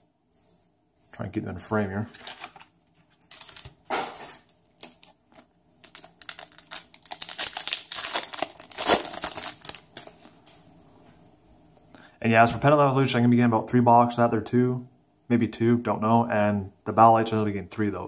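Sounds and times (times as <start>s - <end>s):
cards being handled: 2.1s - 10.4s
foil wrapper crinkling: 2.1s - 10.5s.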